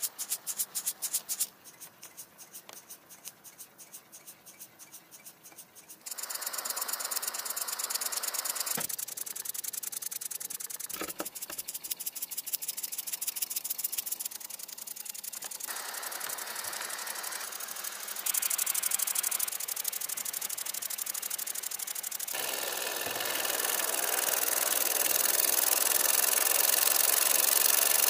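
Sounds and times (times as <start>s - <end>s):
steam hiss: 6.0s - 10.0s, 15.4s - 28.0s
model steam engine chuffing: 6.0s - 28.0s.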